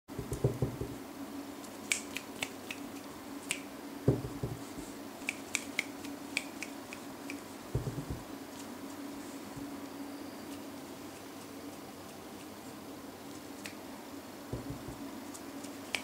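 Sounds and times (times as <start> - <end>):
faint low hum: 0.1 - 16.0
sharp snapping clicks: 1.6 - 3.7, 5.2 - 7.4, 13.6 - 13.8
dull thump: 4.1 - 4.8, 7.8 - 8.3, 14.5 - 15.0.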